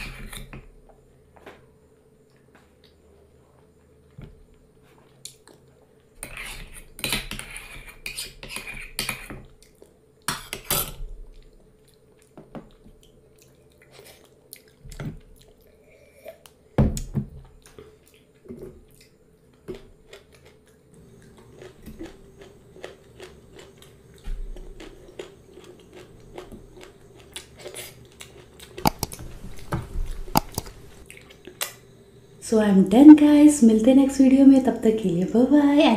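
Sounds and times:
chewing and mouth sounds: 11.3 - 16.6, 17.6 - 31.8.

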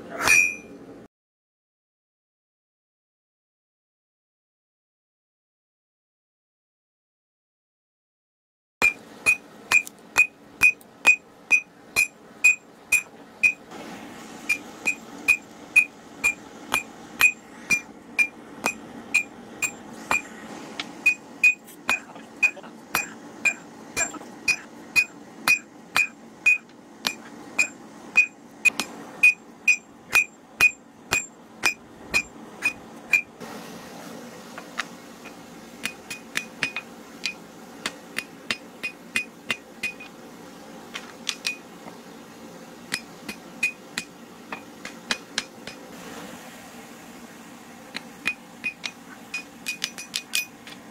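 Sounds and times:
hammer ringing on anvil: 0.2 - 0.7, 14.8 - 20.2, 21.0 - 28.4.

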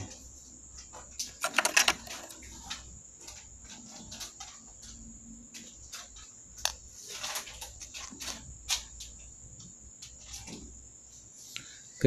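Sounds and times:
small tools clicking and rustling: 0.8 - 5.0.

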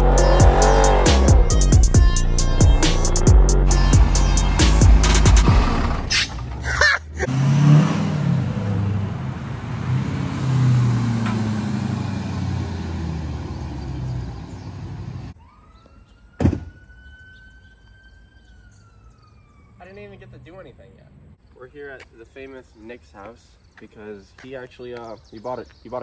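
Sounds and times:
distant police siren: 0.0 - 6.4, 8.2 - 21.4
vehicle engine running: 0.0 - 15.4
thump: 16.4 - 16.8.

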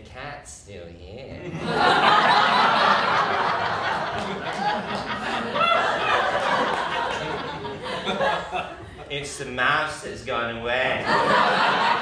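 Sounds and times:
audience laughing: 1.4 - 9.4, 11.0 - 12.0.

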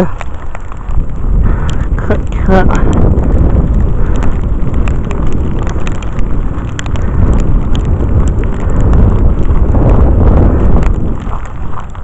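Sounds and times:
strong wind buffeting microphone: 0.0 - 12.0.

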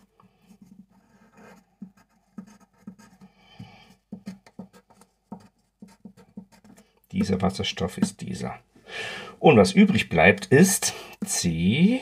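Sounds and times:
pen scratching on paper: 0.0 - 8.3.

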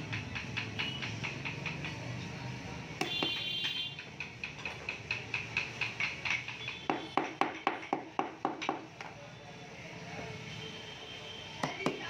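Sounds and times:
small hammer tapping wood: 0.0 - 2.3, 3.0 - 9.0.

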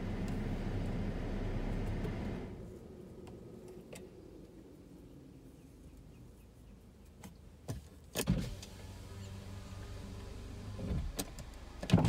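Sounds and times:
low motor hum: 0.0 - 5.7, 8.5 - 12.0.

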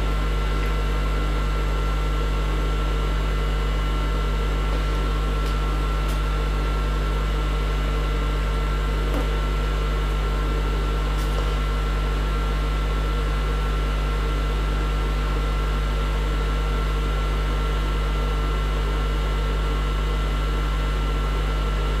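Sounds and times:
steady low hum: 0.0 - 16.6.

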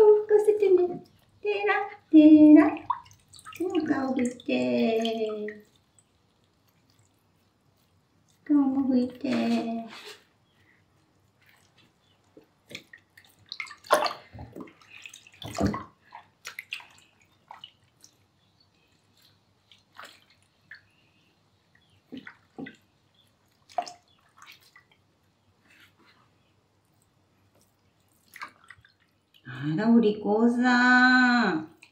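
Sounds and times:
water splashing in a sink: 0.0 - 10.4, 11.2 - 25.2, 27.1 - 29.6, 31.2 - 31.9.

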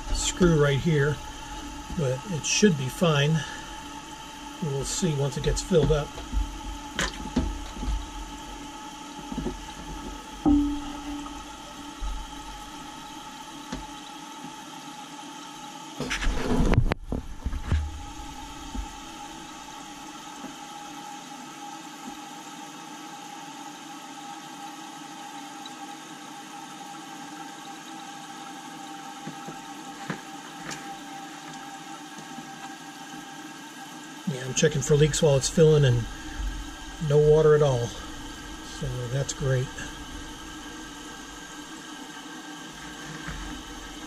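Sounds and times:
water hissing into toilet tank: 0.0 - 44.0.

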